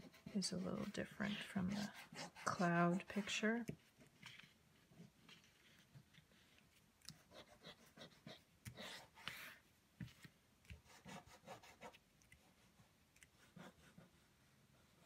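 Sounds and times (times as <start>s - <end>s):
crayon rubbing on paper: 0.0s - 6.6s, 7.2s - 9.6s, 10.8s - 12.0s.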